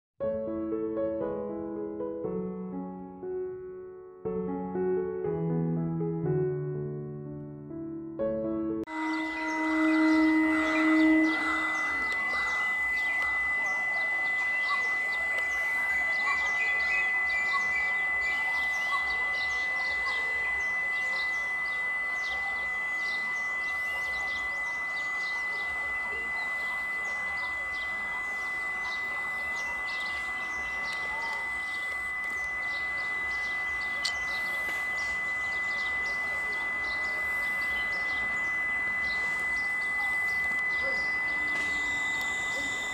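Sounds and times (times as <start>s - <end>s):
birds chirping: 8.9s - 42.9s
distant electric train horn: 8.9s - 42.9s
steady high-pitched whine: 8.9s - 42.9s
murmur of passengers: 9.0s - 42.9s.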